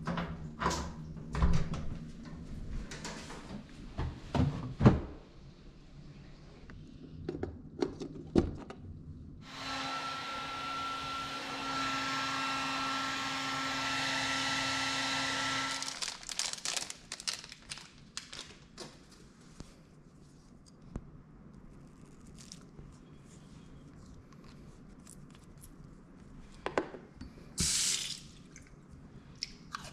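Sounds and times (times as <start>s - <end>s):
hair dryer blowing: 9.4s - 16.0s.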